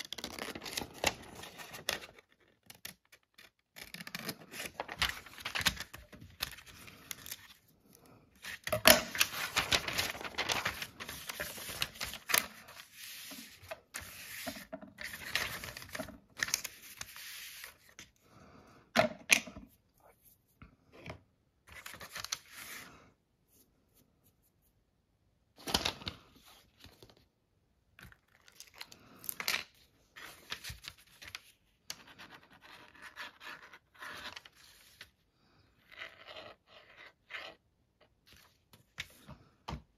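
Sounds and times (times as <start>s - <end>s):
paper rustling and tearing: 8.4s - 17.8s.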